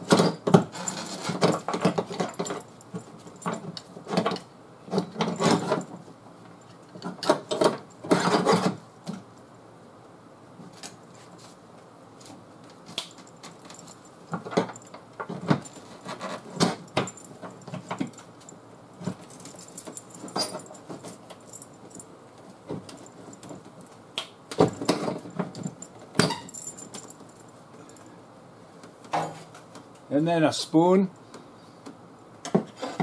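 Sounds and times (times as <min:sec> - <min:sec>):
steel chain clinking and rattling: 0:00.1 - 0:06.0, 0:13.1 - 0:22.2, 0:22.8 - 0:23.8, 0:24.7 - 0:28.1.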